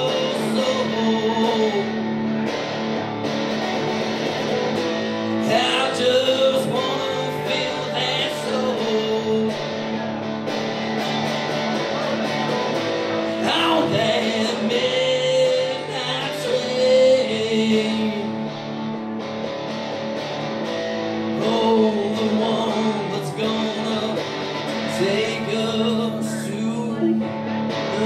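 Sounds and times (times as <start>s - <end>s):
man singing into a microphone: 0.0s - 2.2s, 5.3s - 10.0s, 13.3s - 18.5s, 21.3s - 28.0s
acoustic guitar strumming: 0.0s - 28.0s.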